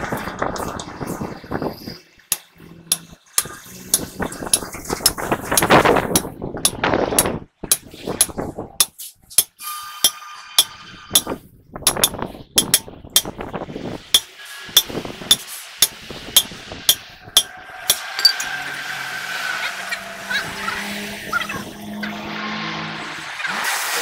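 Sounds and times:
hammer striking metal punch: 11.9s - 13.3s, 14.2s - 18.5s.

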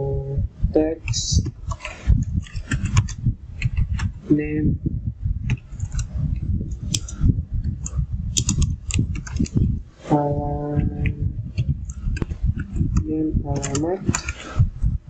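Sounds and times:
steady low rumble: 0.0s - 15.0s
computer keyboard key clicks: 8.4s - 9.5s, 13.6s - 14.4s.

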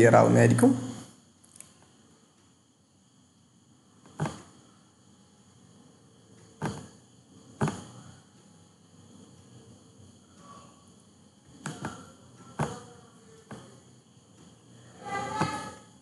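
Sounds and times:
computer mouse clicking: 11.6s - 12.8s.

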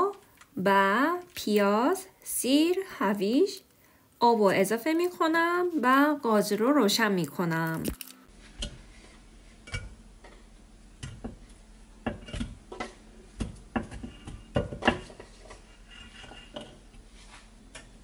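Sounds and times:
food knocking against a pot: 12.0s - 15.3s.

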